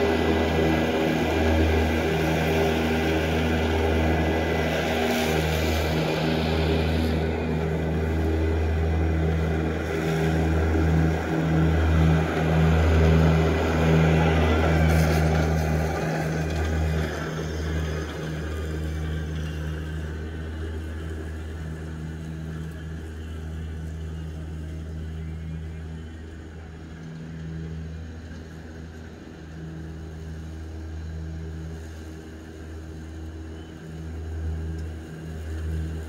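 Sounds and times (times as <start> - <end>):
electric mower humming: 0.0 - 36.0.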